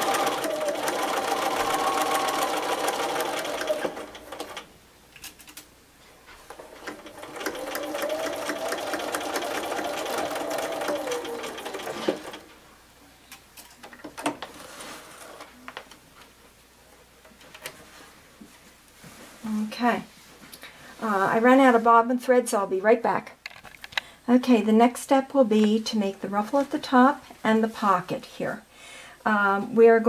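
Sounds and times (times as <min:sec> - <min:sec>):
sewing machine stitching: 0:00.0 - 0:04.7, 0:06.5 - 0:12.5.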